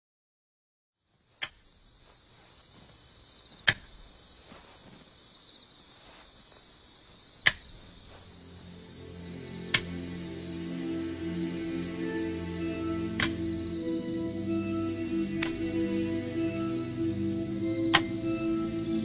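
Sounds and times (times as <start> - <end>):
crickets chirring: 1.0 - 19.0
music: 8.0 - 19.0.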